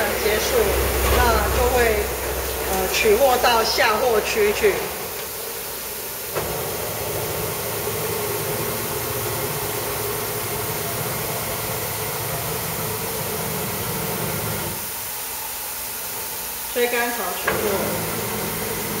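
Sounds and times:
low motor hum: 0:00.0 - 0:05.6
steady air hiss: 0:00.0 - 0:19.0.

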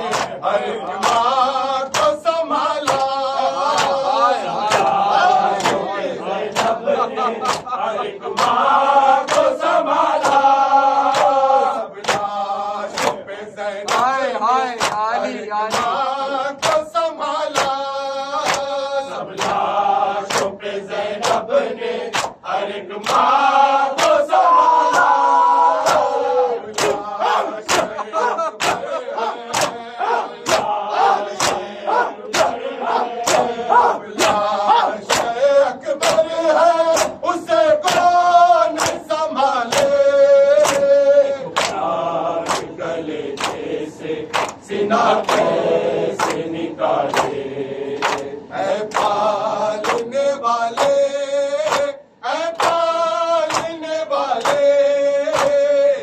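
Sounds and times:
hands slapping chests: 0:00.0 - 0:00.4, 0:01.0 - 0:01.3, 0:01.9 - 0:02.2, 0:02.8 - 0:05.0, 0:05.6 - 0:05.9, 0:06.5 - 0:06.8, 0:07.4 - 0:07.8, 0:08.4 - 0:09.6, 0:10.2 - 0:10.5, 0:11.1 - 0:11.4, 0:12.0 - 0:13.2, 0:13.9 - 0:14.1, 0:14.8 - 0:15.1, 0:15.7 - 0:16.0, 0:16.6 - 0:16.8, 0:17.5 - 0:17.8, 0:18.4 - 0:18.7, 0:19.4 - 0:19.6, 0:20.3 - 0:20.5, 0:21.2 - 0:21.4, 0:22.1 - 0:22.4, 0:24.0 - 0:24.3, 0:25.8 - 0:29.8, 0:30.4 - 0:30.8, 0:31.4 - 0:31.7, 0:32.3 - 0:32.6, 0:33.2 - 0:33.6, 0:35.1 - 0:35.4, 0:36.0 - 0:36.3, 0:36.9 - 0:37.2, 0:38.8 - 0:39.0, 0:39.7 - 0:40.0, 0:40.6 - 0:40.9, 0:41.6 - 0:41.8, 0:42.4 - 0:42.7, 0:43.4 - 0:43.6, 0:44.3 - 0:44.6, 0:46.2 - 0:46.4, 0:47.1 - 0:47.4, 0:48.0 - 0:48.3, 0:49.8 - 0:50.1, 0:50.8 - 0:51.0, 0:53.5 - 0:53.8, 0:54.4 - 0:54.7, 0:55.3 - 0:55.6
men chanting in unison: 0:00.0 - 0:56.0.

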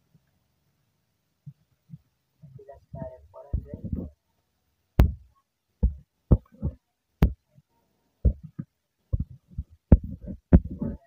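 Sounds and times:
taps on a touchscreen: 0:05.0 - 0:07.4, 0:08.3 - 0:11.0.

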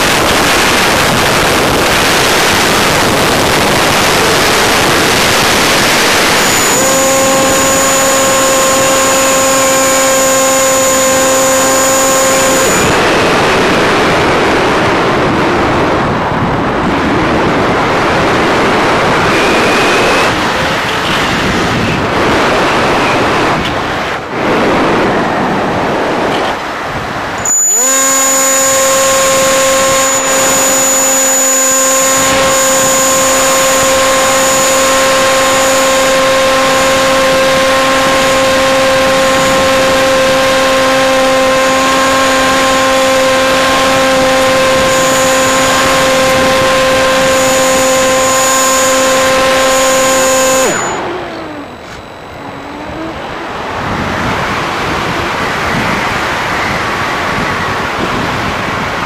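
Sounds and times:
wind rushing over airframe: 0:00.0 - 0:10.0, 0:12.3 - 0:27.8, 0:50.7 - 0:59.0
electric motor and propeller hum: 0:00.0 - 0:59.0.

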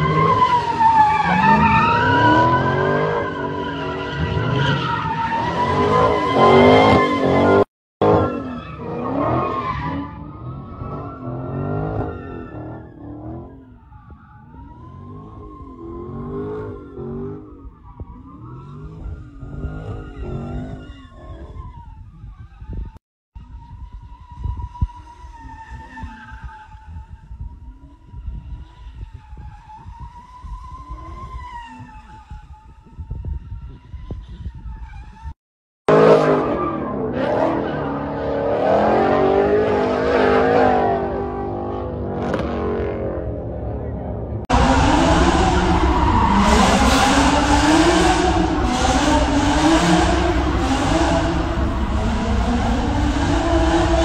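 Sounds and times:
car tyres squealing: 0:00.0 - 0:54.0
low rumble: 0:43.5 - 0:54.0
car engine revving: 0:44.4 - 0:54.0.

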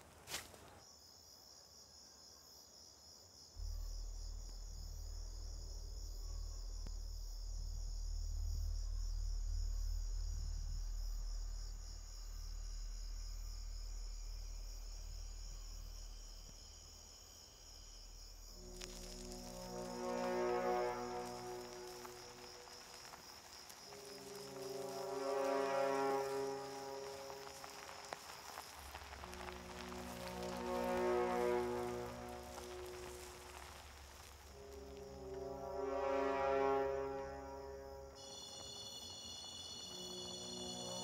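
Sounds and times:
insects trilling: 0:00.3 - 0:41.0
deep low rumble: 0:03.6 - 0:17.0.

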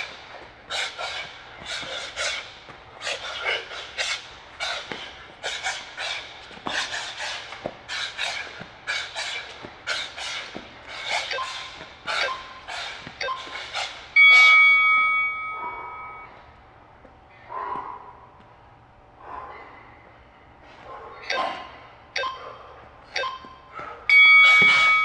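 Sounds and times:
sharp rhythmic exhalations: 0:00.0 - 0:14.8
interval timer beeps: 0:11.2 - 0:12.6, 0:13.2 - 0:16.4, 0:21.3 - 0:22.4, 0:23.1 - 0:25.0.

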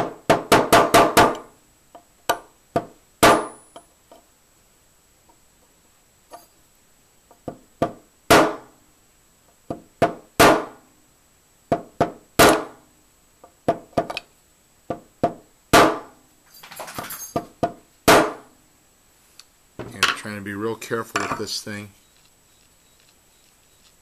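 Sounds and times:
hammer striking a punch: 0:02.3 - 0:03.8, 0:07.8 - 0:08.7, 0:11.7 - 0:12.8, 0:14.9 - 0:16.1, 0:18.1 - 0:18.5
rustle: 0:16.0 - 0:24.0.

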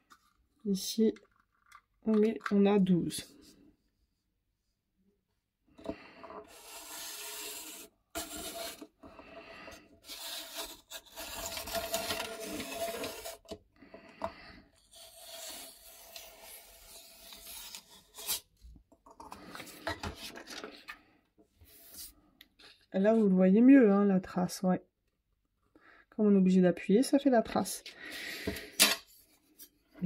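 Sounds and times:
blade scraping through paper: 0:06.5 - 0:08.9, 0:10.0 - 0:13.5, 0:14.8 - 0:18.5.

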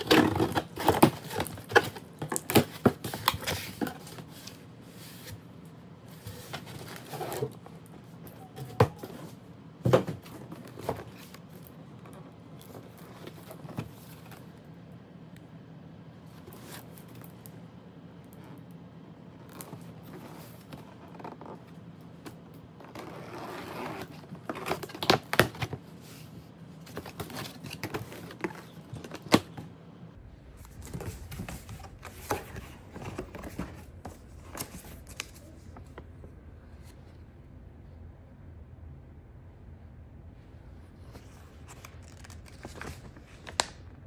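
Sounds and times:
paper and cardboard rustling: 0:00.0 - 0:14.6, 0:19.4 - 0:29.7, 0:30.5 - 0:36.1, 0:41.0 - 0:43.8.

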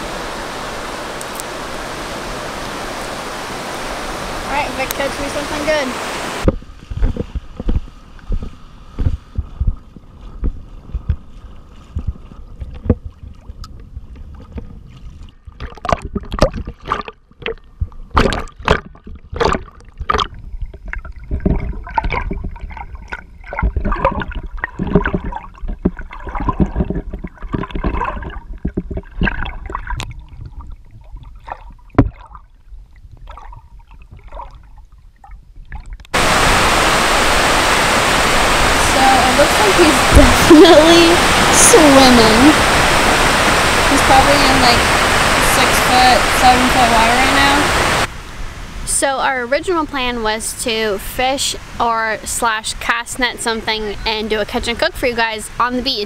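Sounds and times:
surf crashing: 0:00.0 - 0:09.4, 0:36.1 - 0:49.0
seawater sloshing and splashing: 0:00.0 - 0:48.6
thumps on camera: 0:06.5 - 0:09.8
loud rush of wind: 0:36.2 - 0:48.9.

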